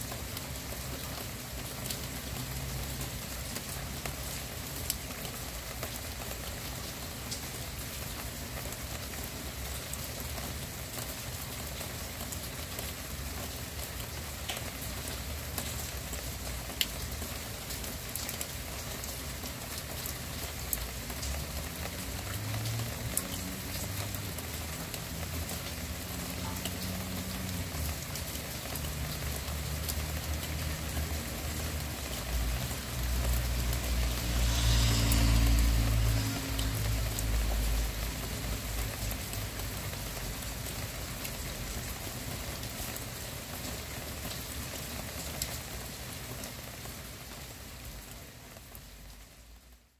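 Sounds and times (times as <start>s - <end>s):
steady rain falling: 0.0s - 49.9s
sharp drip ticks: 13.9s - 41.5s.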